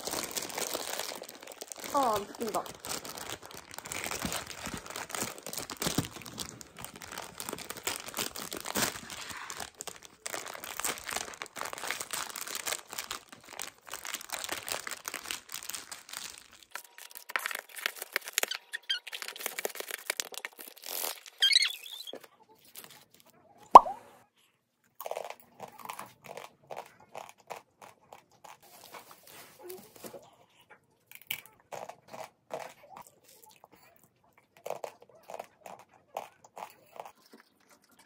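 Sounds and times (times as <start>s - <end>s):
packet tearing: 0.0s - 22.1s
foil packet crinkling: 0.0s - 23.1s.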